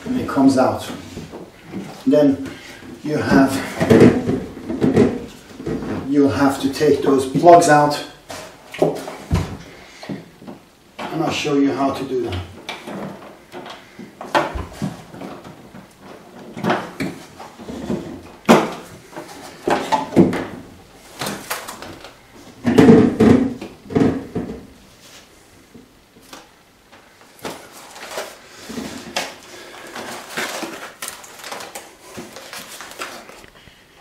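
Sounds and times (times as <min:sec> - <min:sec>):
plastic knocking and scraping: 0:00.9 - 0:06.1, 0:12.3 - 0:24.8.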